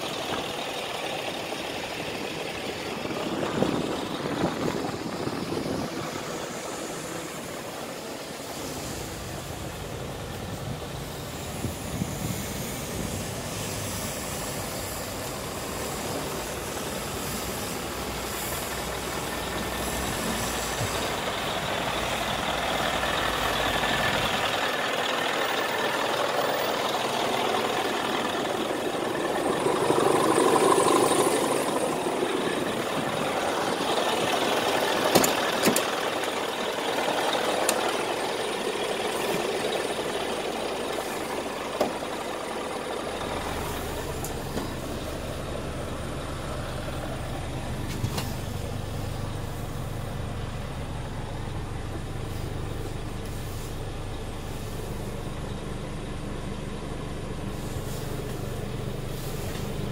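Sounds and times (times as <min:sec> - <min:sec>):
diesel truck engine idling: 0:00.0 - 0:59.9
deep low rumble: 0:26.6 - 0:35.1
sharp clicks and knocks: 0:34.9 - 0:36.4.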